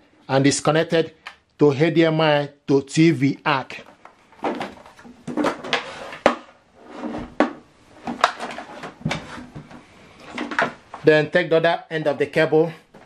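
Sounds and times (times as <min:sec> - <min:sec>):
rustling and scraping on tabletop: 0:04.0 - 0:10.8.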